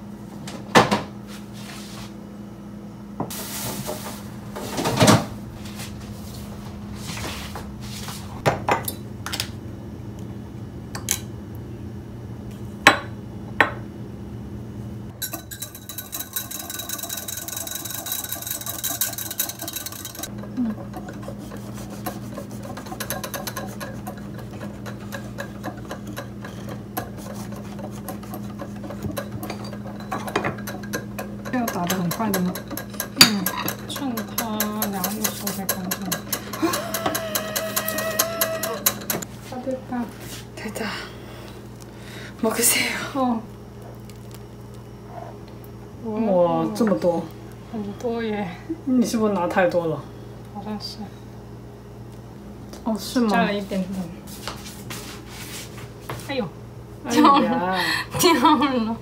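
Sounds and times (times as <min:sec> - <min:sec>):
steady low hum: 0:00.0 - 0:59.0
spoon stirring in ceramic mug: 0:15.2 - 0:39.3.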